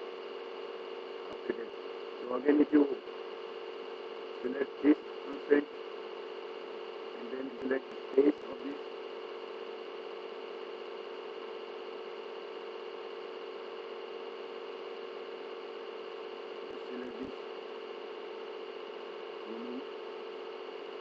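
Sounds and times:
electrical hum: 0.0 - 21.0
microphone hiss: 16.6 - 17.4.

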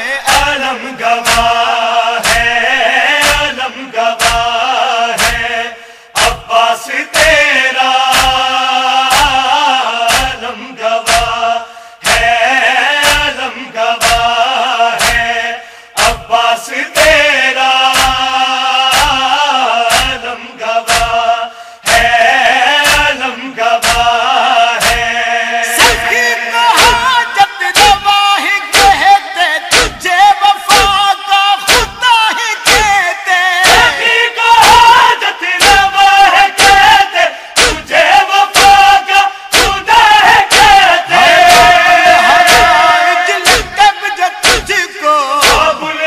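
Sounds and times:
man chanting a lament: 0.0 - 46.0
chest-beating thumps: 1.2 - 1.6, 2.2 - 2.6, 3.2 - 3.6, 4.2 - 4.6, 5.2 - 5.6, 10.1 - 10.4, 11.0 - 11.4, 12.0 - 12.4, 13.0 - 13.4, 14.0 - 14.4, 15.0 - 15.4, 17.9 - 18.3, 19.9 - 20.2, 20.9 - 21.2, 21.8 - 22.2, 22.8 - 23.2, 23.8 - 24.2, 24.8 - 25.2, 26.8 - 27.1, 27.8 - 28.1, 28.7 - 29.1, 29.7 - 30.1, 30.7 - 31.0, 31.7 - 32.0, 32.6 - 33.0, 33.6 - 34.0, 37.6 - 37.9, 38.5 - 38.8, 39.5 - 39.9, 40.5 - 44.8, 45.4 - 45.8.

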